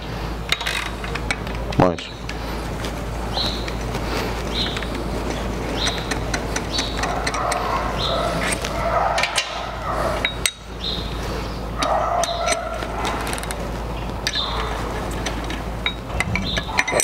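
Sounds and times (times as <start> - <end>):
socket wrench clinking on metal: 4.6 - 9.6, 11.8 - 13.6, 14.2 - 17.0.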